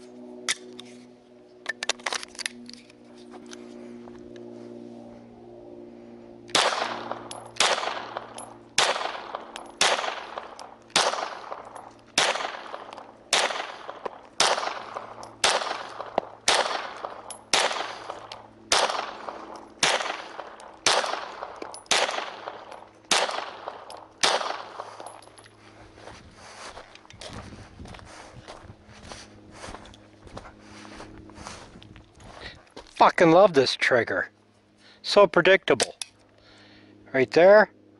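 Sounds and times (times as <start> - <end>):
pistol shots: 6.5 - 25.1.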